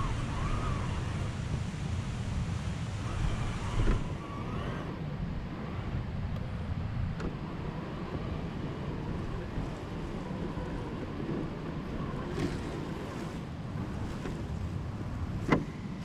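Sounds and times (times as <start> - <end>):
wind and handling rumble: 0.0 - 16.0.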